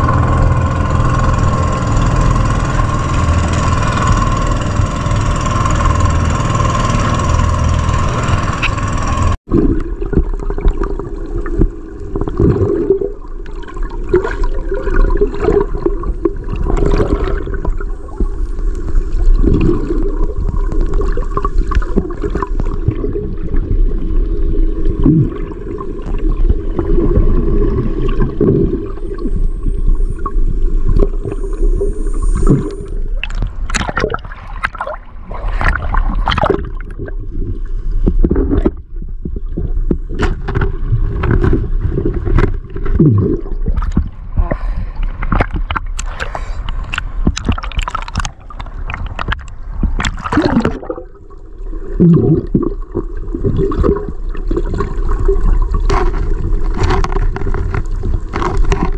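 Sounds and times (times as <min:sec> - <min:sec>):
underwater gurgling and bubbling: 0:00.0 - 0:58.9
sharp clicks and knocks: 0:45.0 - 0:50.3.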